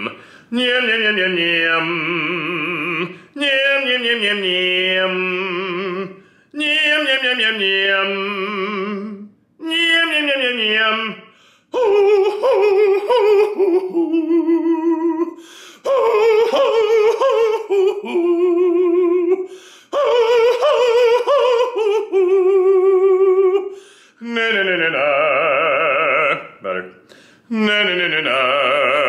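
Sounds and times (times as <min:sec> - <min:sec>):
man singing falsetto vocal exercise: 0:00.0 - 0:29.0
singer breathing: 0:00.1 - 0:00.5, 0:03.1 - 0:03.4, 0:06.1 - 0:06.6, 0:11.3 - 0:11.8, 0:15.4 - 0:15.9, 0:19.4 - 0:20.0, 0:23.7 - 0:24.2, 0:27.0 - 0:27.5.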